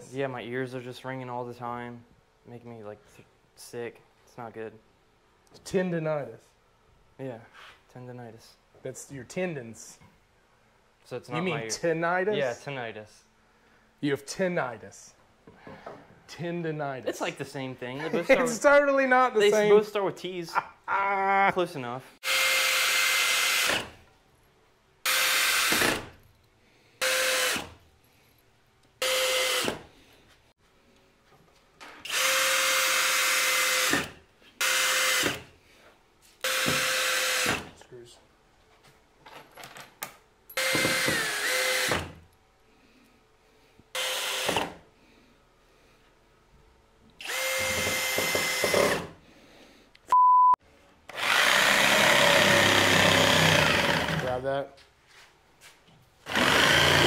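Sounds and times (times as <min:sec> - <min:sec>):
cordless drill driving screws: 0:22.2 - 0:23.9, 0:25.1 - 0:26.1, 0:27.0 - 0:27.8, 0:29.0 - 0:29.8, 0:32.0 - 0:35.5, 0:36.4 - 0:37.7, 0:40.6 - 0:42.2, 0:44.0 - 0:44.7, 0:47.2 - 0:49.1, 0:51.1 - 0:54.3, 0:56.3 - 0:57.0
power saw cutting lumber: 0:47.2 - 0:49.1, 0:51.1 - 0:54.3, 0:56.3 - 0:57.0
loud steady beep: 0:50.1 - 0:50.6.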